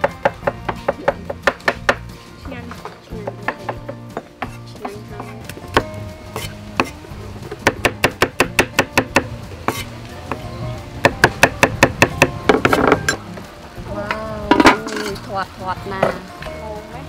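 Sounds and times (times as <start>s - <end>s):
background music: 0.0s - 17.0s
knife chopping on wooden block: 3.2s - 7.0s, 7.6s - 9.9s.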